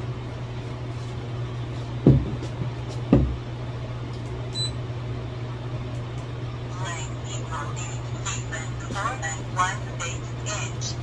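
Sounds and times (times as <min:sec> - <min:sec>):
steady low hum: 0:00.0 - 0:11.0
dull thumps: 0:02.0 - 0:03.4.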